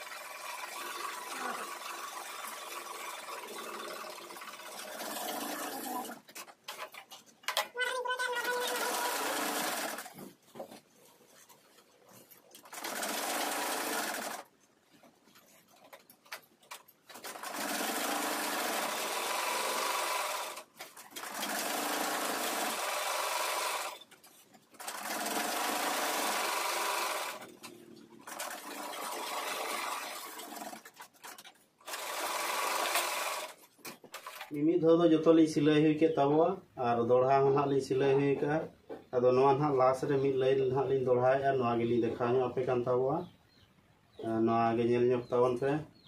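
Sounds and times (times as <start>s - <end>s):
sewing machines stitching: 0.0s - 7.0s, 8.4s - 10.3s, 12.5s - 14.5s, 15.4s - 34.6s.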